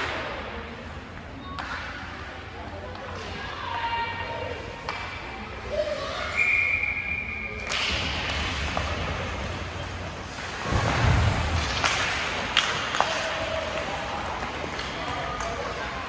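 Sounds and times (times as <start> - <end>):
high whistle: 6.2 - 7.6
sticks clacking on puck: 11.6 - 15.9.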